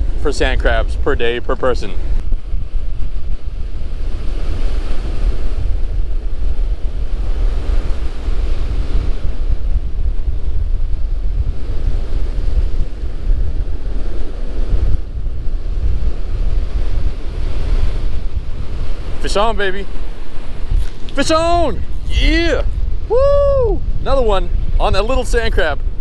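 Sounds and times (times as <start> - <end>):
ocean surf breaking: 0.0 - 26.0
wind buffeting microphone: 0.0 - 26.0.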